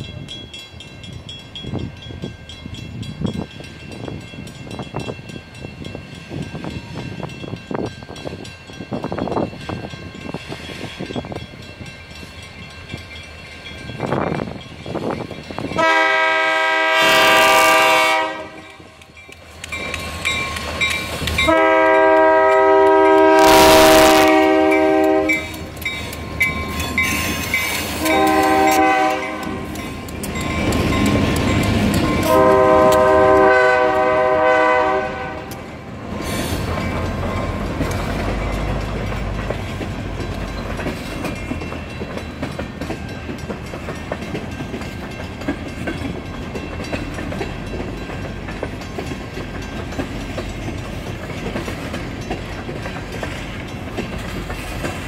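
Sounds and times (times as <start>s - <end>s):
locomotive air horn: 15.8s - 18.7s, 21.5s - 25.6s, 28.0s - 29.7s, 32.3s - 35.7s
freight cars rumbling and clacking: 29.4s - 33.5s, 35.5s - 55.0s.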